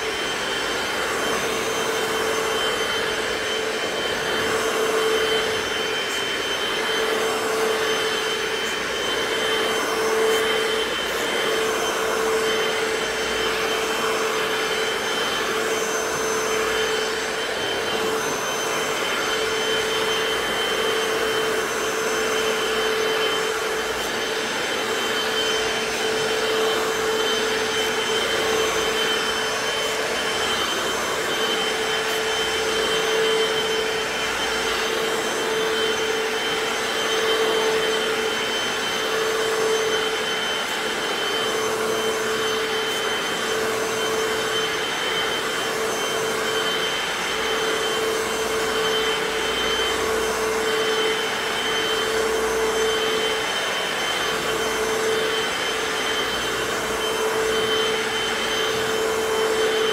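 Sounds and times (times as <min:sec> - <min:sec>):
floor cleaner motor whine: 0:00.0 - 0:59.9.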